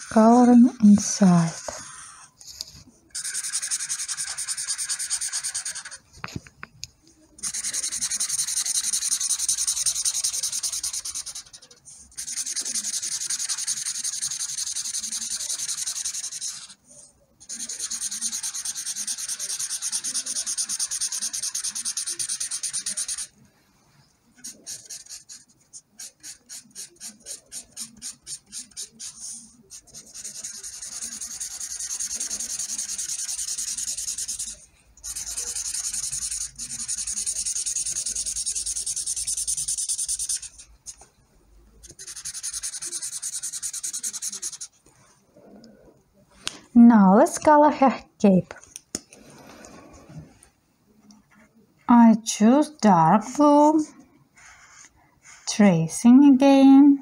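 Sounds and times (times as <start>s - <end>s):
marker scribbling on paper: 0.0s - 2.3s, 3.1s - 6.1s, 7.4s - 23.4s, 24.4s - 41.1s, 41.8s - 44.8s, 54.4s - 55.6s.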